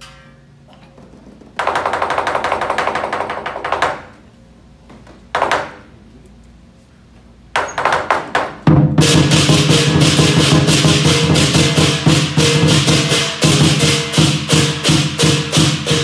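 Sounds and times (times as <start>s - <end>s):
big drum beating: 8.6s - 16.0s
cymbal crashes: 9.0s - 16.0s.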